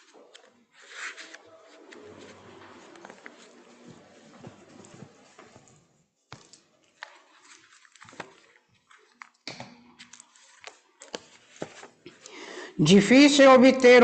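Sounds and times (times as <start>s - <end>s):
soft rustling: 0.0s - 9.4s, 10.0s - 12.2s
footsteps on tiled floor: 1.1s - 9.3s.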